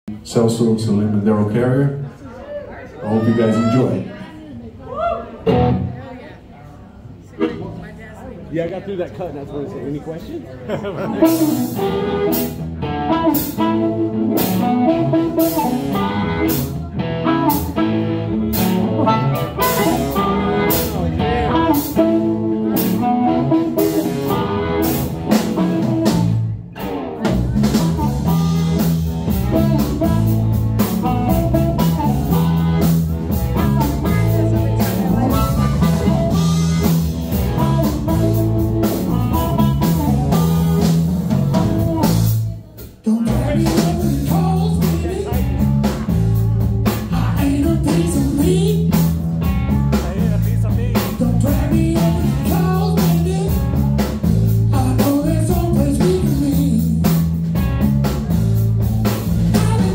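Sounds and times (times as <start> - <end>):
electric guitar: 4.9 - 6.1, 10.9 - 59.9
electric bass: 5.0 - 6.1, 11.1 - 59.9
drum kit: 11.0 - 59.9
amplified harmonica: 11.2 - 16.6, 17.2 - 25.0.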